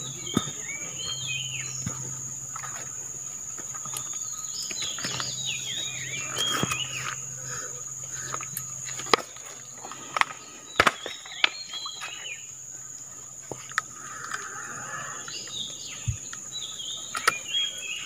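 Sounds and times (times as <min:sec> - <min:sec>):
bird chirps: 0:00.0 - 0:09.0, 0:10.3 - 0:12.6
high insect drone: 0:00.0 - 0:18.0.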